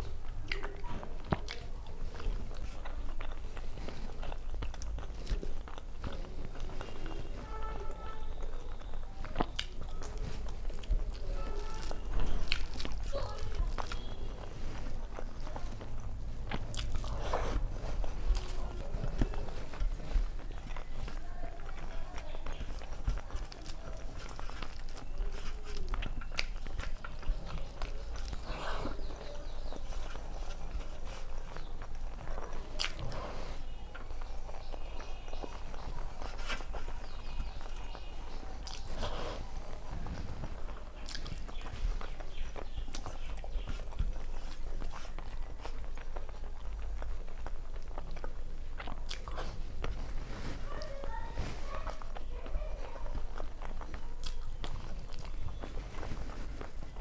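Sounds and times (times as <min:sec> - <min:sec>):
person chewing food: 0:00.0 - 0:57.0.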